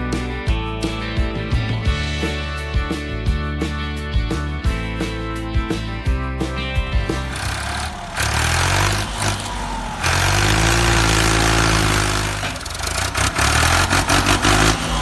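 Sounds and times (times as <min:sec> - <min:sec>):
vehicle engine revving: 0:07.1 - 0:15.0
loud rushing noise: 0:07.2 - 0:15.0.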